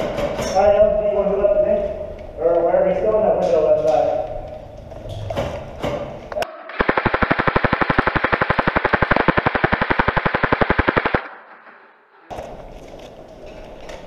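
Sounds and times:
airsoft gun full-auto burst: 6.7 - 11.4.

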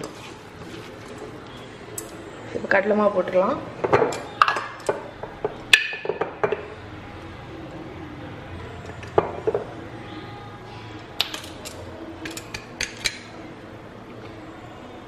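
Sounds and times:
utensils clinking on steel bowl: 3.8 - 6.7, 11.2 - 13.3.

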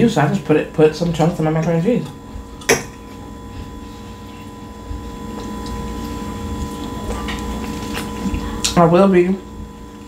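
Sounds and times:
steady background hum: 0.0 - 10.0
chewing food close up: 3.0 - 8.8.

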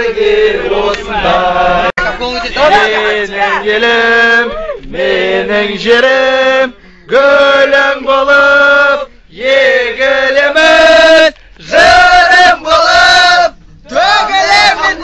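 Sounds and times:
group of men singing loudly: 0.0 - 15.0.

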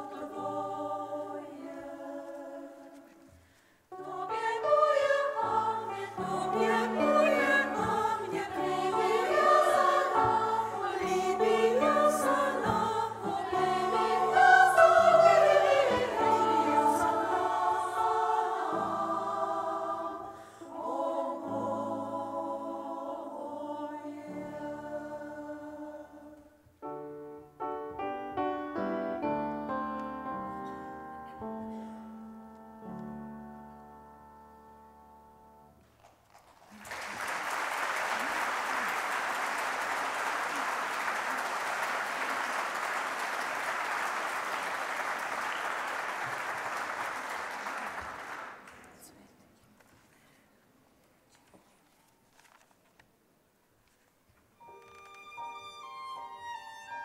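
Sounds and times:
women's choir singing: 0.0 - 3.3, 3.9 - 26.6.

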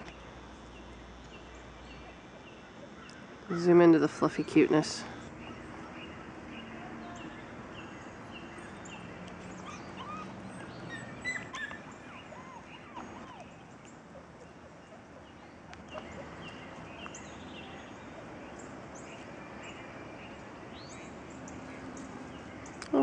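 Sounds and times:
birds chirping: 0.0 - 23.0
puppy whimpering: 9.6 - 13.6.

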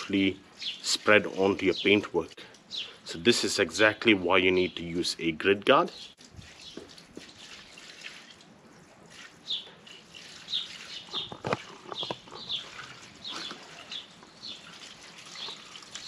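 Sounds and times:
water poured onto pavement: 0.0 - 2.2, 6.2 - 16.0
bird chirping: 0.5 - 5.1, 5.9 - 7.6, 9.4 - 15.8.

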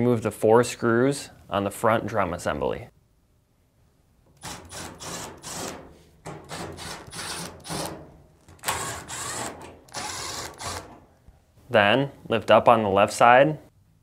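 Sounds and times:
power screwdriver whining: 4.4 - 5.8, 6.5 - 7.9, 8.6 - 11.0.

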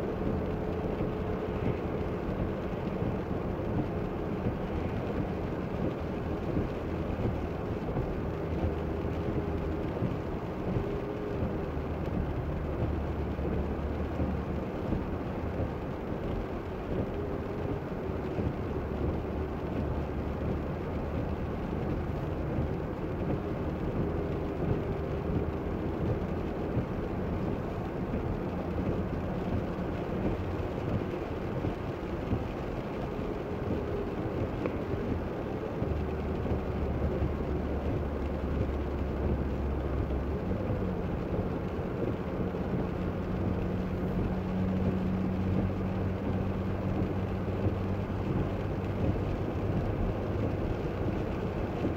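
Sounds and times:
car engine hum: 0.0 - 51.9
tyre noise on wet asphalt: 0.0 - 51.9.

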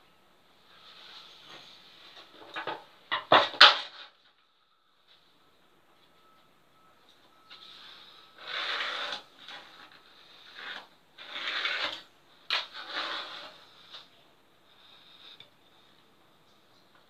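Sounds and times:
pencil scratching on plywood: 8.4 - 12.0, 12.6 - 14.1.

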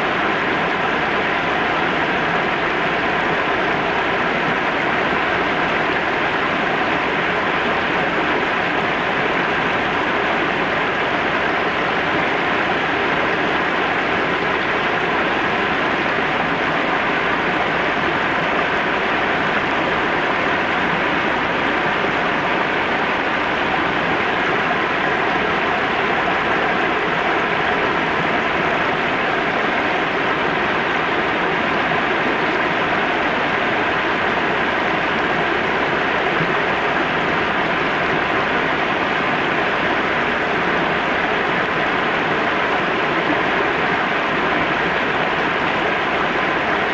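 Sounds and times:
river water rushing over stones: 0.0 - 46.9.

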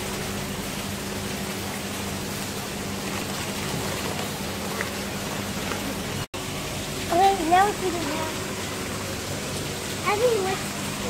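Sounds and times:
water rushing: 0.0 - 11.0.

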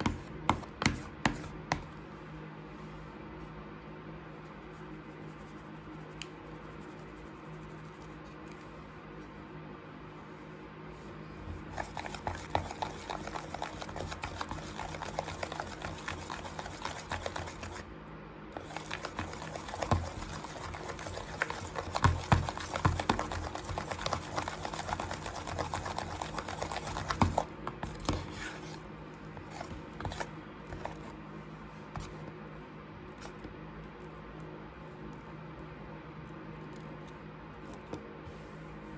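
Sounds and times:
spatula stirring squelching slime: 11.0 - 32.3.

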